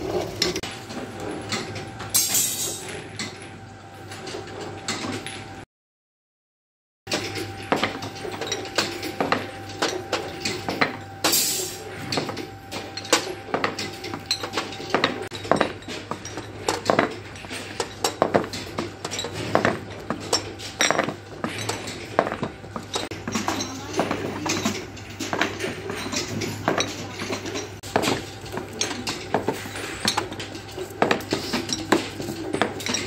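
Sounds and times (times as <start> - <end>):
glass bottles clinking: 7.2 - 33.0.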